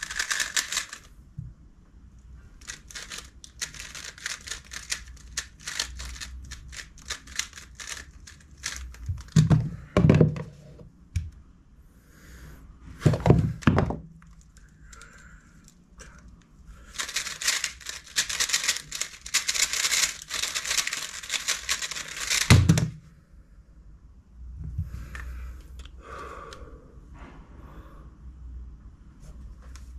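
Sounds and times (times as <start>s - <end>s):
puzzle cube plastic clicks: 0.0s - 1.1s, 2.6s - 9.4s, 14.2s - 22.9s
rustling of handling: 0.0s - 1.1s, 2.6s - 9.7s, 13.0s - 22.9s.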